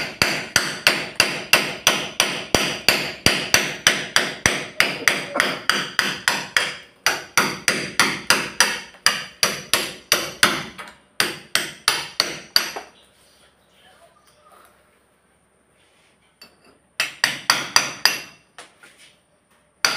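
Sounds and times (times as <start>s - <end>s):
hand hammer striking with ring: 0.0s - 12.9s.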